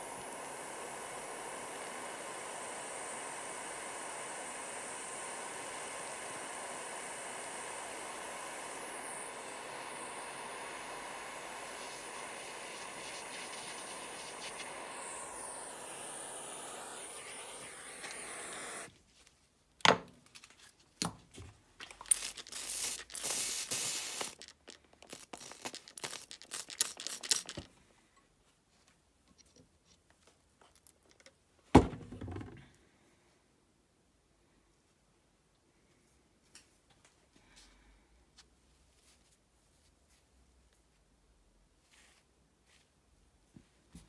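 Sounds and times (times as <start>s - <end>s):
butane torch flame hissing: 0.0s - 18.9s, 21.9s - 27.7s
irregular crackling: 21.8s - 27.7s.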